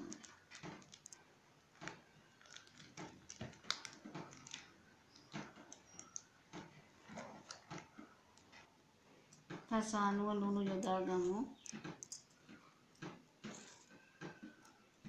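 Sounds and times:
plastic packet crinkling: 0.0s - 6.3s.

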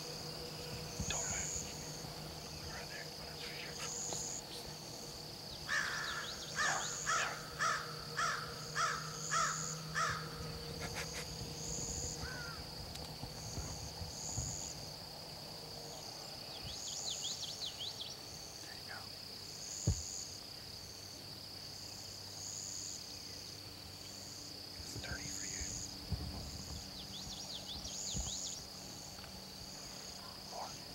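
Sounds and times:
high insect drone: 0.0s - 30.9s
insect buzzes: 0.0s - 30.9s
crow cawing: 5.7s - 10.4s, 12.2s - 12.6s.

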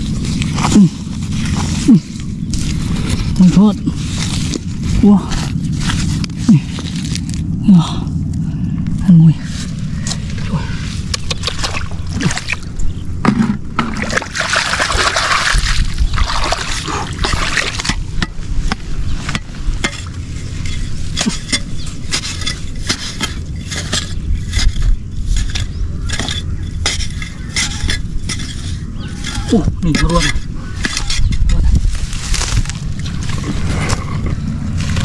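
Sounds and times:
splashing in muddy water: 11.3s - 12.8s, 13.8s - 18.0s.

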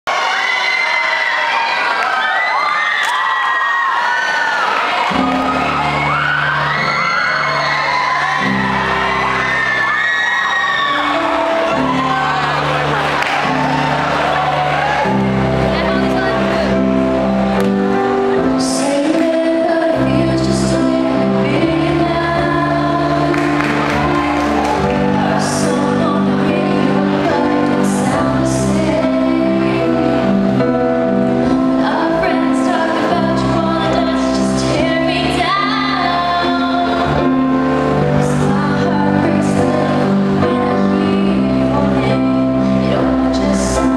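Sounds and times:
instrumental backing music: 4.8s - 43.9s
girl singing into a microphone: 18.6s - 23.6s, 25.4s - 30.6s, 31.4s - 43.9s.

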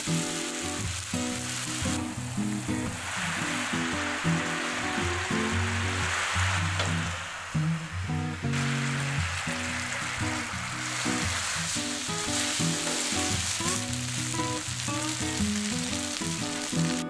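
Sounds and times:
rice sizzling in frying pan: 0.0s - 17.0s
soft guitar music: 0.0s - 17.0s
spatula stirring in pan: 9.0s - 15.7s.

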